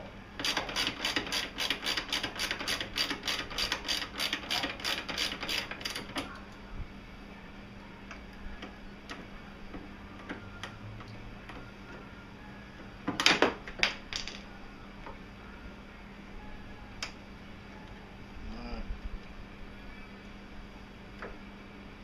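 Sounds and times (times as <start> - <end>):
ratchet wrench clicking: 0.4 - 6.0.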